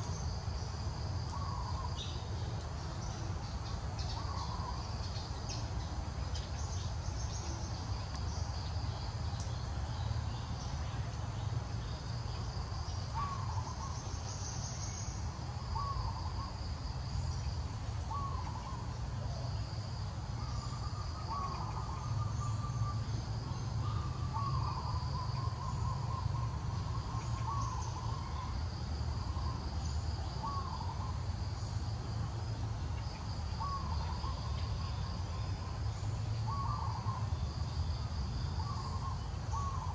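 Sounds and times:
insects buzzing: 0.0s - 39.9s
bird calling: 1.3s - 2.4s, 3.0s - 5.6s, 13.1s - 16.6s, 18.1s - 19.5s, 20.4s - 28.6s, 29.2s - 31.7s, 33.0s - 37.4s, 38.6s - 39.9s.

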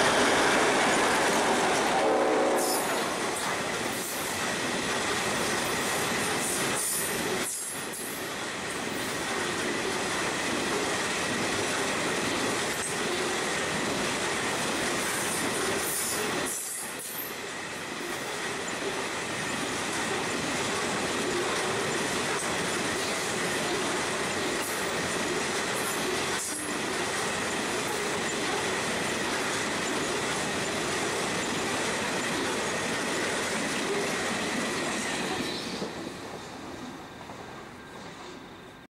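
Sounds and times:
freight train wagons rumbling past: 0.0s - 38.9s.

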